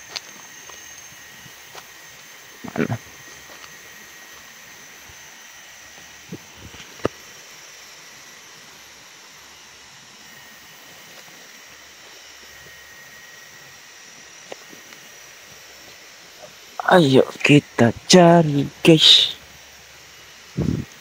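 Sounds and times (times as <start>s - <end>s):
faint high drone: 0.0s - 21.0s
forest background hiss: 0.0s - 21.0s.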